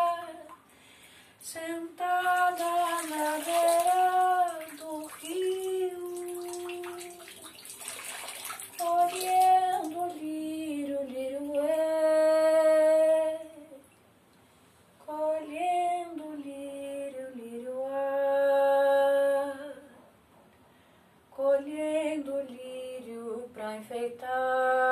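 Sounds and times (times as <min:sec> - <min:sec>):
woman singing unaccompanied: 0:00.0 - 0:00.6, 0:01.4 - 0:07.6, 0:08.6 - 0:13.9, 0:15.0 - 0:20.0, 0:21.3 - 0:24.9
water splashing: 0:02.0 - 0:11.8.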